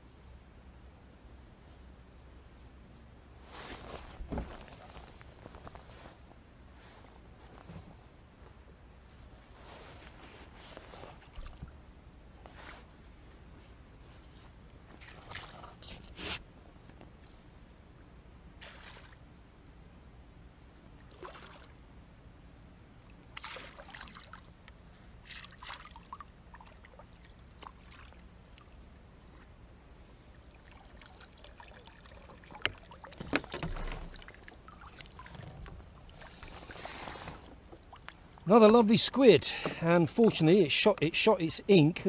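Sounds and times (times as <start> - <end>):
rustling: 3.4 - 8.2, 9.5 - 11.6, 33.2 - 38.3
squid squirting and splashing water: 30.4 - 37.2.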